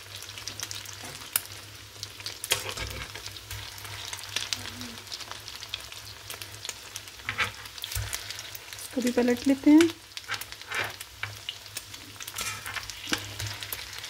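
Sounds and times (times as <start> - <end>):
oil sizzling and crackling: 0.0 - 14.0
metal turner clicks and scrapes: 2.5 - 3.2, 7.2 - 8.2, 10.2 - 11.3, 12.3 - 14.0.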